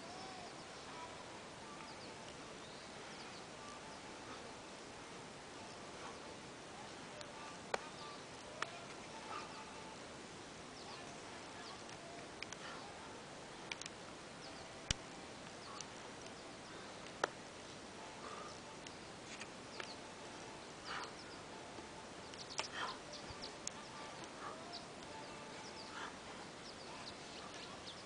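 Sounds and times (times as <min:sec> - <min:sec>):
steady low hiss: 0:00.0 - 0:28.0
high chirps and ticks: 0:18.5 - 0:20.1, 0:20.8 - 0:28.0.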